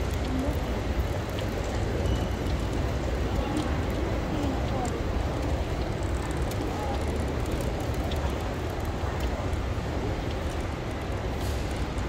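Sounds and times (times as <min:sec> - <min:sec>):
low rumble of indoor hall: 0:00.0 - 0:12.0.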